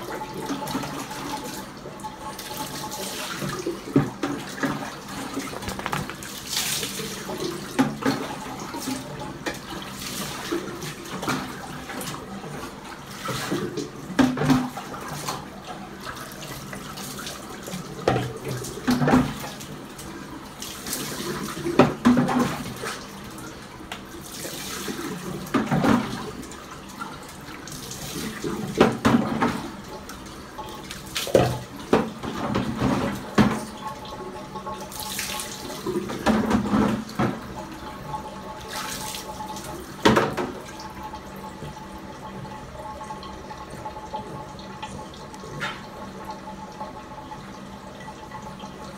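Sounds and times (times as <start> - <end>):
tap running and splashing: 0.0 - 48.8
splashes from scrubbing: 3.0 - 9.1.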